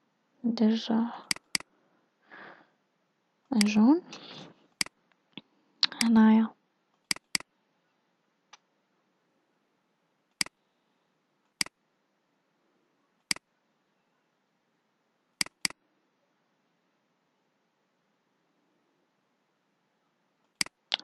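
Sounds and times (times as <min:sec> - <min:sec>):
mouse button clicking: 0:07.1 - 0:07.4, 0:15.4 - 0:15.8.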